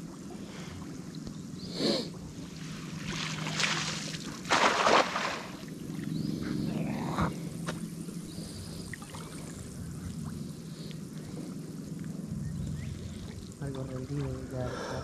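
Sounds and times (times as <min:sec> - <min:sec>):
water sloshing and splashing: 0:02.2 - 0:06.2, 0:12.8 - 0:14.7.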